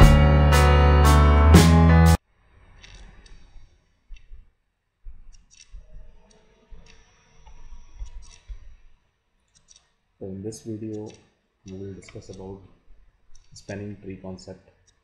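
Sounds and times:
computer mouse clicks: 0:02.7 - 0:04.5, 0:05.1 - 0:10.0, 0:10.6 - 0:13.9, 0:14.8 - 0:15.0.

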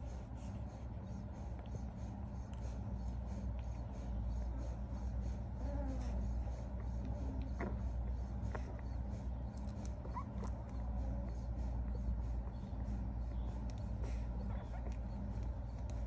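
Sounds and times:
low hum: 0:00.0 - 0:16.0
puppies suckling clicks: 0:01.1 - 0:05.0, 0:06.6 - 0:16.0
puppies squeaking: 0:05.6 - 0:13.0.

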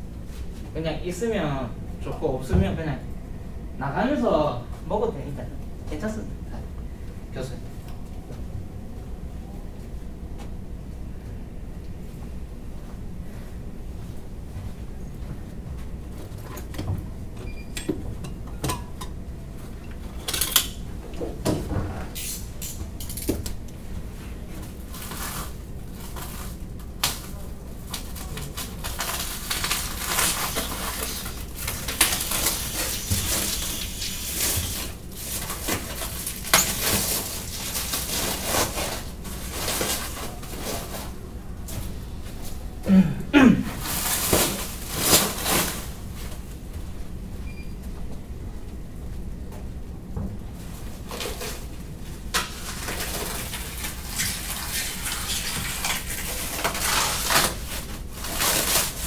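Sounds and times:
rustling: 0:24.1 - 0:42.6.

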